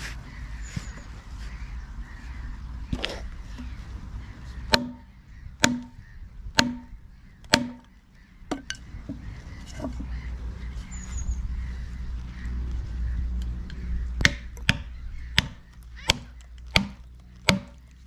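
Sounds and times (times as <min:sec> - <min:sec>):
hammer knocking wooden wedges: 0:04.7 - 0:05.0, 0:05.6 - 0:06.0, 0:06.6 - 0:06.9, 0:07.5 - 0:07.9, 0:14.2 - 0:17.8.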